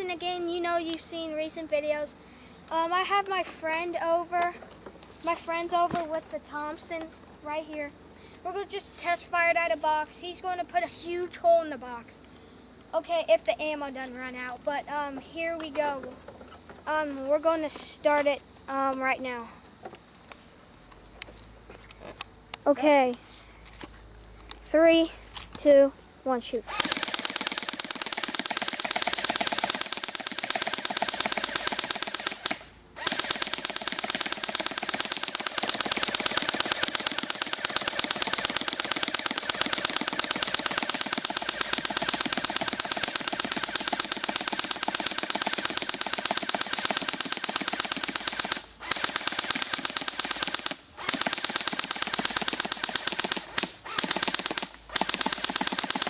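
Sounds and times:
airsoft gun automatic fire: 0:26.7 - 0:56.0.

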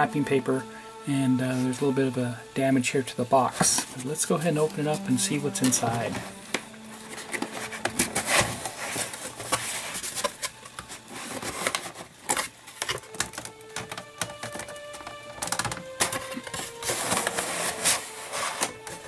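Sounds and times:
cardboard rubbing and scraping: 0:07.1 - 0:12.5, 0:16.3 - 0:18.8
cardboard box being opened: 0:16.1 - 0:18.8.

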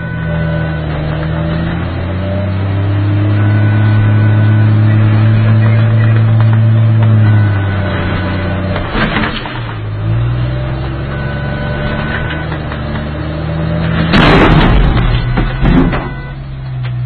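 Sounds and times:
bulldozer engine droning: 0:00.0 - 0:17.0
loud explosion blast: 0:14.1 - 0:16.2.

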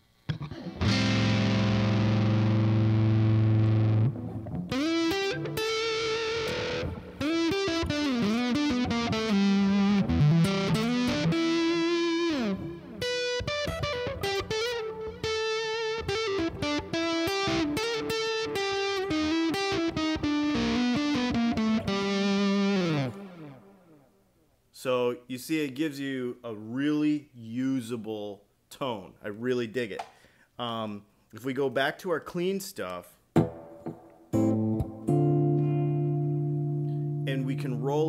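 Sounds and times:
distorted electric guitar lead: 0:00.3 - 0:24.1, 0:33.4 - 0:37.3.

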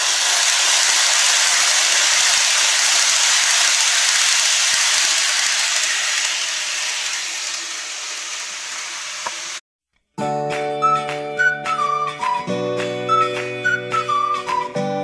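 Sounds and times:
model train wheels and motor rattle: 0:00.0 - 0:09.6
music: 0:10.1 - 0:15.0.

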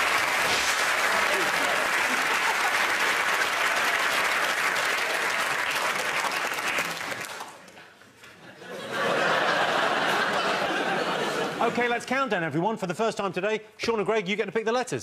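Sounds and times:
studio audience applauding: 0:00.0 - 0:07.6.

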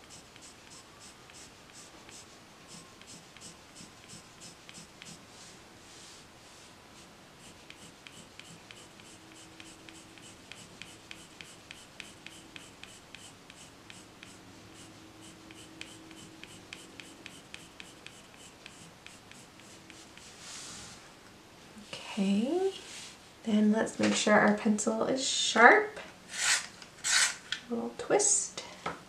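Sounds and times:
colored pencil scratching on paper: 0:00.0 - 0:05.3, 0:07.0 - 0:20.6.

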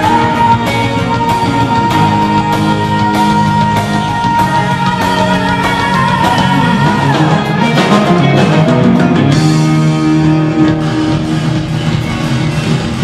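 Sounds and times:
live rock band playing: 0:00.0 - 0:13.0
moving bass line: 0:00.0 - 0:13.0.

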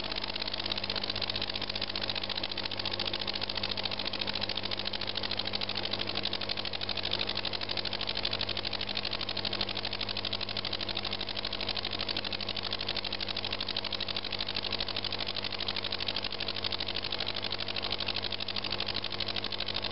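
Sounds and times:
model engine ticking: 0:00.0 - 0:19.9.

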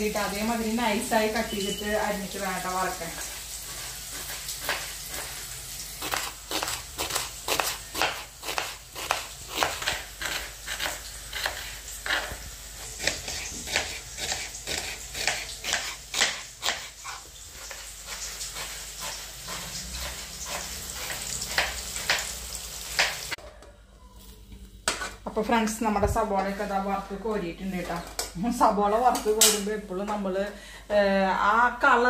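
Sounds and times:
onions sizzling in oil: 0:00.0 - 0:23.4
knife slicing onion on board: 0:03.2 - 0:23.4.

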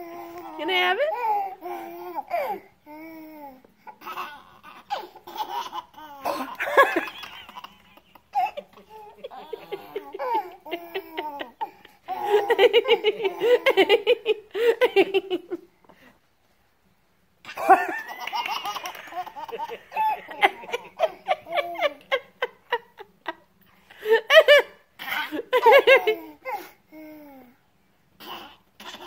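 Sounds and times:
toddler laughing: 0:03.9 - 0:14.3, 0:17.5 - 0:22.6, 0:28.2 - 0:29.0.

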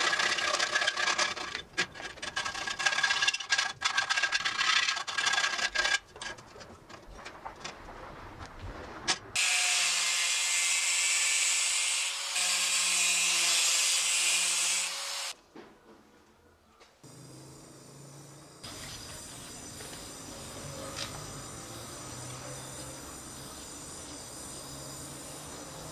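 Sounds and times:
power tool cutting brass: 0:09.4 - 0:15.4.

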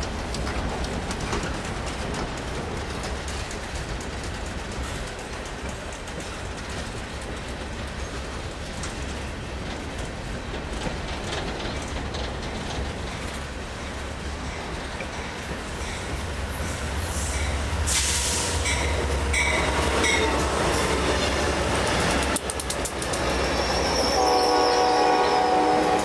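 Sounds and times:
wheel clicks over rail joints: 0:00.0 - 0:14.0, 0:21.2 - 0:23.3
train cars rumbling past: 0:00.0 - 0:26.0.

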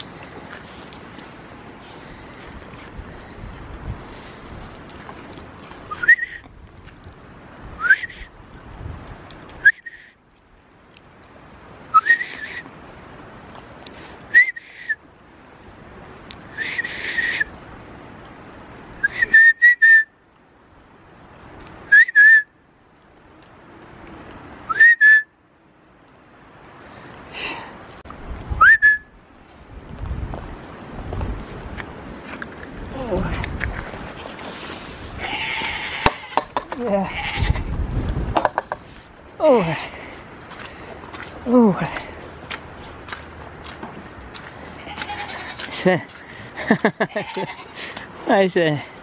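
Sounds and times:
wind noise on microphone: 0:00.0 - 0:09.7, 0:28.0 - 0:45.6
person whistling rising notes: 0:05.9 - 0:06.4, 0:07.8 - 0:08.2, 0:11.9 - 0:12.6, 0:19.0 - 0:20.1, 0:24.7 - 0:25.3, 0:28.6 - 0:29.1.

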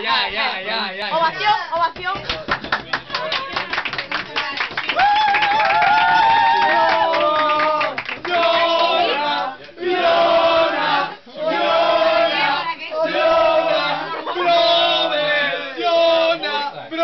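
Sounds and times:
group singing in unison: 0:07.4 - 0:17.0.

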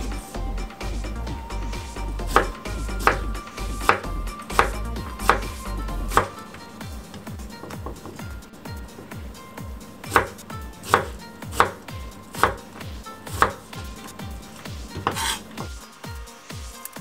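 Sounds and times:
knife chopping on wooden board: 0:02.3 - 0:06.4, 0:10.0 - 0:15.8.

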